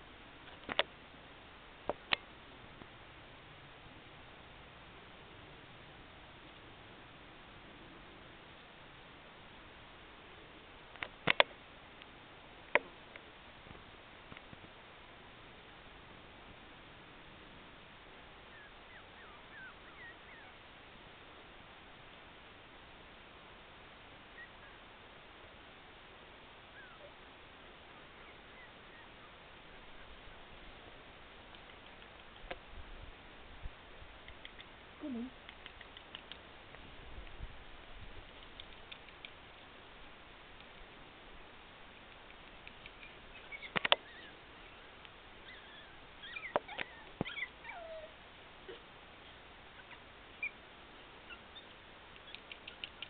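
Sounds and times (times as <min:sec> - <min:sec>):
faint high chirps: 0:18.4 - 0:20.6
puppies squeaking and whimpering: 0:18.5 - 0:20.6, 0:26.8 - 0:27.1, 0:28.2 - 0:29.1, 0:43.0 - 0:44.4, 0:45.4 - 0:48.1
sharp clicks: 0:31.5 - 0:32.6, 0:34.2 - 0:34.7, 0:35.4 - 0:36.5, 0:38.3 - 0:39.4, 0:42.1 - 0:44.1, 0:52.1 - 0:53.0
puppy whine falling in pitch: 0:45.4 - 0:48.2.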